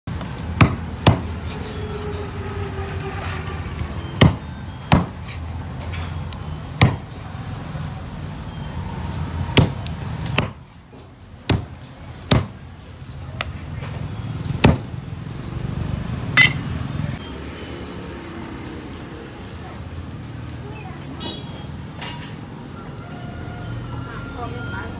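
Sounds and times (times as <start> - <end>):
cleaver chopping on wooden board: 0.6 - 1.3, 4.2 - 5.2, 6.8 - 7.1, 9.6 - 10.6, 11.5 - 11.7, 12.3 - 12.6, 14.6 - 14.9.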